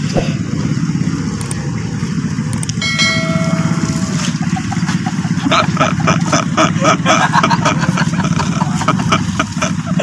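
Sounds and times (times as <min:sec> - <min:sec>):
truck engine idling: 0:00.0 - 0:10.0
metallic ding: 0:02.8 - 0:04.6.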